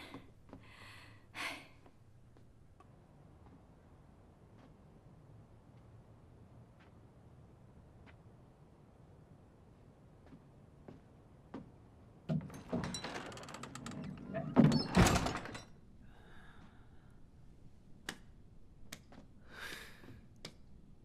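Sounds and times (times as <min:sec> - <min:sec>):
faint footsteps: 0:10.1 - 0:11.8
wooden doors scraping and creaking: 0:12.3 - 0:15.8.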